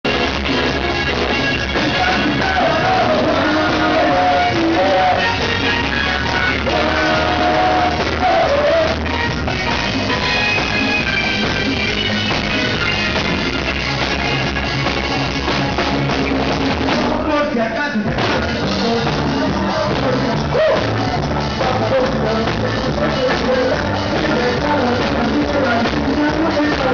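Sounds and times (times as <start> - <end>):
live rock band playing: 0.0 - 26.9
person singing: 1.6 - 12.1, 16.7 - 26.9.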